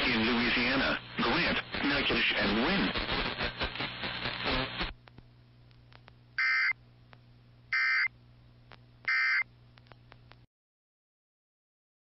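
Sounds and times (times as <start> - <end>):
synthesized voice speaking: 0.0 - 3.0
faint steady hum: 0.0 - 10.5.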